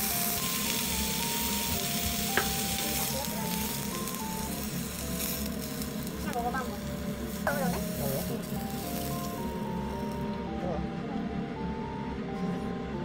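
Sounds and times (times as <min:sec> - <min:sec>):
meat sizzling in a frying pan: 0:00.0 - 0:10.2
light background tune: 0:00.0 - 0:13.0.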